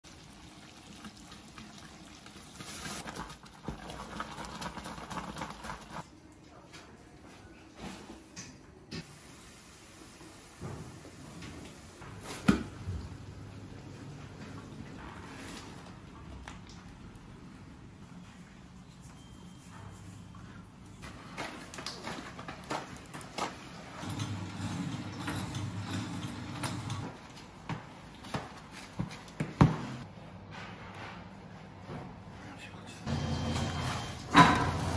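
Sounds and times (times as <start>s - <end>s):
sugar syrup boiling and bubbling: 0.0s - 6.1s
wooden paddle stirring: 2.6s - 6.0s.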